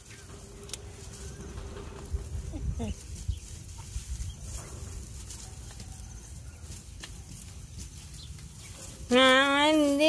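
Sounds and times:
rustling in straw: 0:00.0 - 0:10.0
low rumble: 0:00.3 - 0:05.3.

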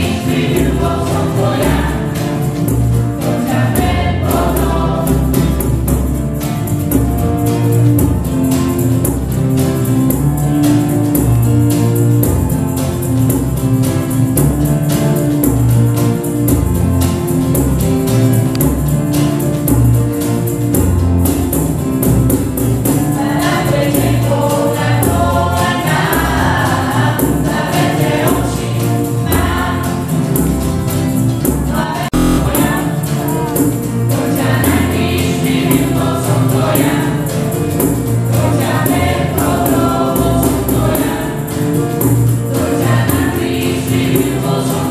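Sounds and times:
people singing: 0:00.0 - 0:06.1, 0:22.8 - 0:30.7, 0:31.5 - 0:44.9
church band playing: 0:00.0 - 0:44.9.

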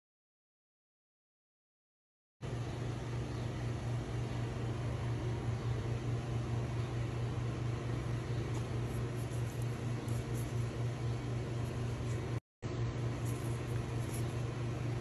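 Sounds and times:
steady low hum: 0:02.4 - 0:15.0
constant hiss: 0:08.1 - 0:15.0.

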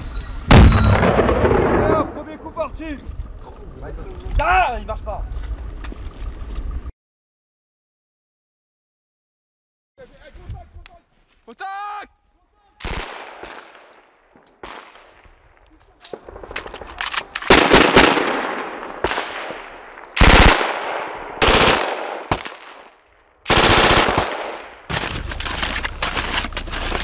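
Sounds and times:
rifle shots echoing: 0:00.5 - 0:02.6, 0:12.8 - 0:15.4, 0:16.1 - 0:25.0
machine gun bursts: 0:20.2 - 0:20.7, 0:21.4 - 0:21.9, 0:23.5 - 0:24.5.

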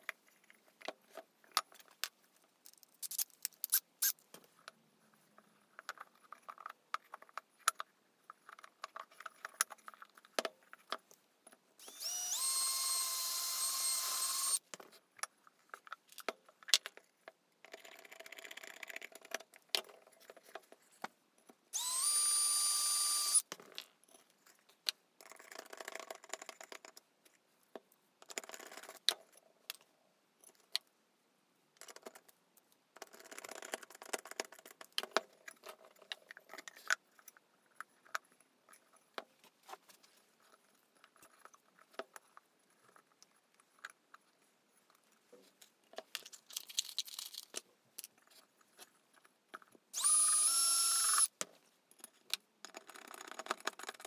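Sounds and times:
cordless drill whining: 0:11.8 - 0:14.6, 0:21.8 - 0:23.4, 0:50.0 - 0:51.3
tools and pot clicking and knocking: 0:51.9 - 0:54.0.

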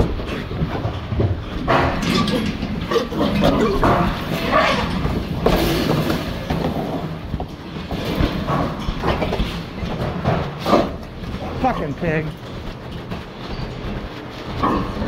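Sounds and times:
pigs grunting and squealing: 0:00.0 - 0:07.2, 0:14.5 - 0:15.0
clatter and rattle: 0:00.0 - 0:15.0.

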